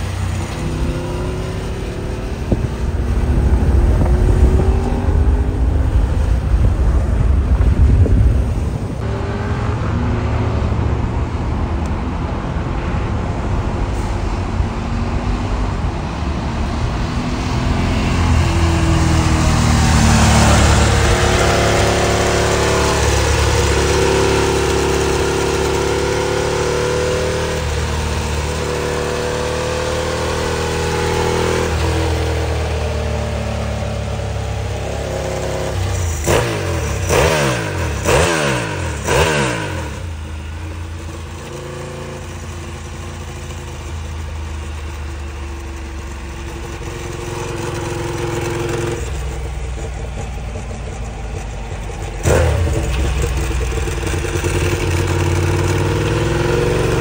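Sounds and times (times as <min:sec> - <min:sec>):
motorcycle engine running: 0:00.0 - 0:12.6, 0:17.8 - 0:57.0.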